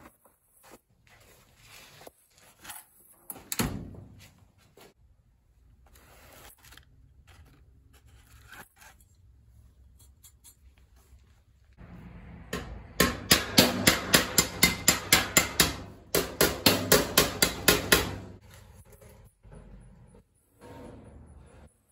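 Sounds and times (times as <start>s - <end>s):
faint handling rustles: 0.0s - 3.5s.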